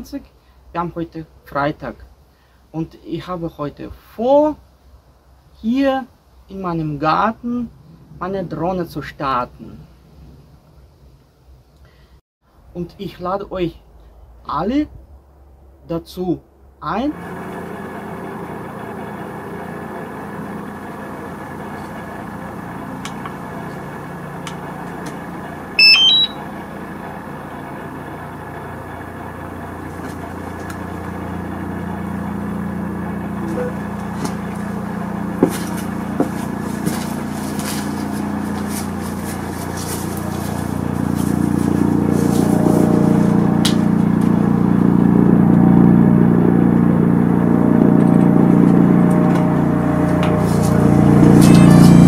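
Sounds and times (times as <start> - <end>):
rising run of beeps: 25.8 - 26.4.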